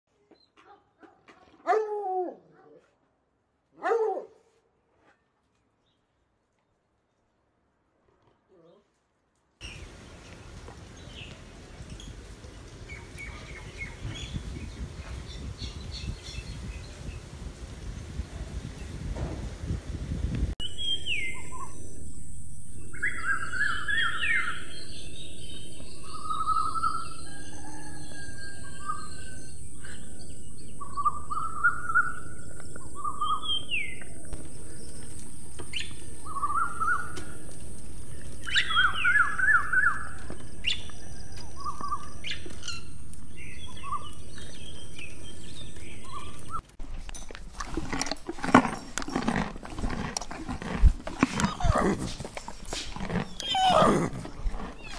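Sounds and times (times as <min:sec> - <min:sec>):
songbird chirping: 0:09.6 - 0:19.1, 0:20.6 - 0:47.3
steady outdoor hiss: 0:09.6 - 0:27.4, 0:28.4 - 0:54.9.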